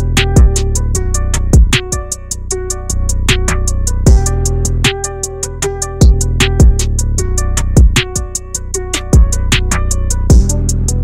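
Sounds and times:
kick drum: 0.0s - 2.1s, 4.0s - 5.1s, 6.0s - 6.9s, 7.7s - 8.4s, 9.1s - 9.5s, 10.3s - 10.6s
bass line: 0.0s - 11.0s
hi-hat ticks: 0.0s - 11.0s.

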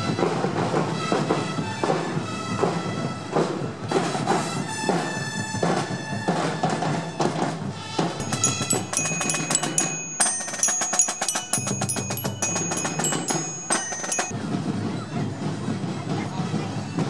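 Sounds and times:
drumming: 0.0s - 17.0s
glockenspiel ringing notes: 8.2s - 14.6s.

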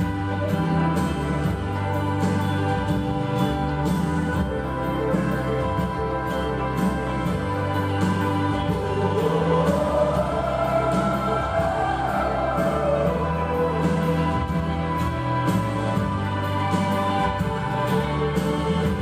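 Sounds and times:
music with steady beat: 0.0s - 19.0s
voices singing: 6.8s - 19.0s.

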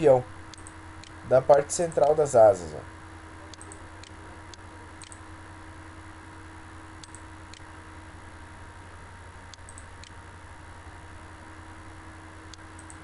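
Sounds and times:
low electrical hum and hiss: 0.0s - 13.0s
computer mouse clicking: 0.5s - 1.2s, 3.5s - 4.2s, 5.0s - 5.2s, 7.0s - 7.7s, 9.5s - 10.2s, 12.5s - 13.0s.

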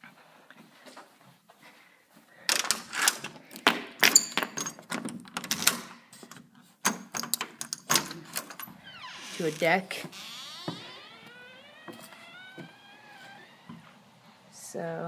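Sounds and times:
door chain lock clicking and rattling: 2.5s - 3.4s, 4.0s - 5.9s, 6.8s - 9.8s.

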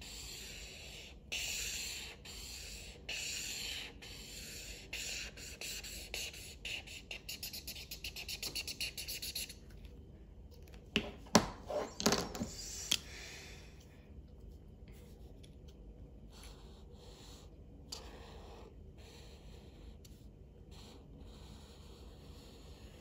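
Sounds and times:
marker scribbling on paper: 0.0s - 9.6s, 16.3s - 23.0s.

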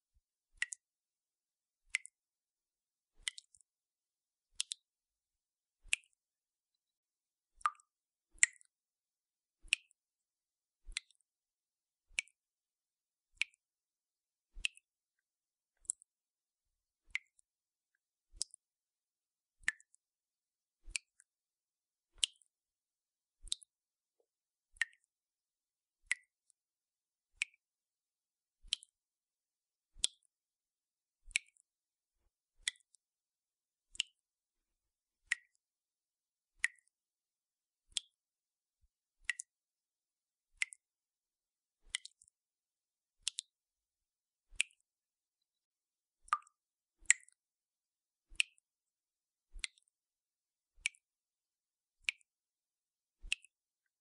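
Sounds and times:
water dripping from tap: 7.6s - 8.7s, 19.6s - 20.0s, 36.6s - 36.9s, 39.2s - 39.6s, 40.6s - 40.8s, 41.9s - 42.4s, 43.2s - 43.6s, 46.3s - 47.4s.

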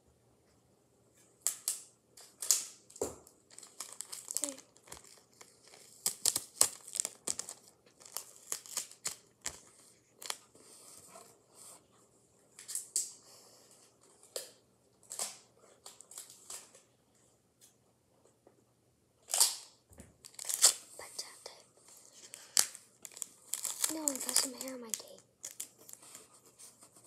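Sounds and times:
paper crinkling: 3.5s - 11.2s, 20.2s - 27.0s
tape pulled and torn: 19.3s - 20.8s.

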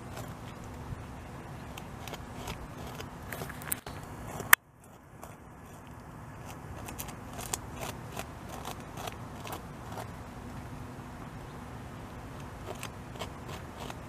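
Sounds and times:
beaver gnawing wood: 0.0s - 14.0s.

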